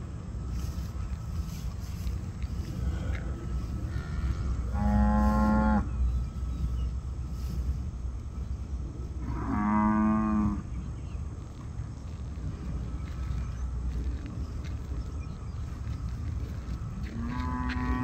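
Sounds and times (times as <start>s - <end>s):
cattle mooing: 3.8s - 5.9s, 9.2s - 10.6s, 17.1s - 18.0s.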